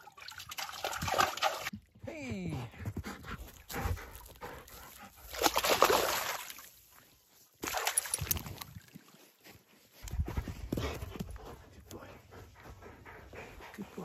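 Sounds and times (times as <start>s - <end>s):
water sloshing and splashing: 0.0s - 1.8s, 3.6s - 9.5s.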